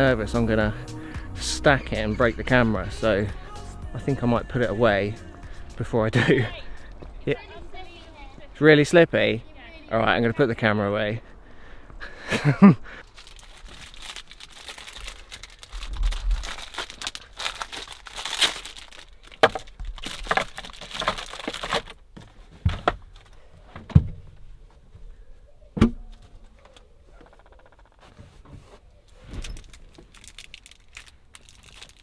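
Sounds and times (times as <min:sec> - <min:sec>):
plastic packets crinkling: 0:13.0 - 0:22.0, 0:29.4 - 0:32.0.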